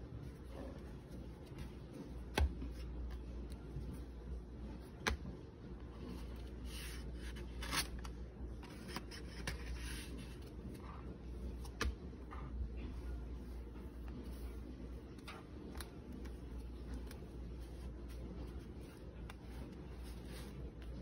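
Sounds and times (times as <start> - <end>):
paper pages rustling and scraping: 6.0 - 11.9, 13.1 - 21.0.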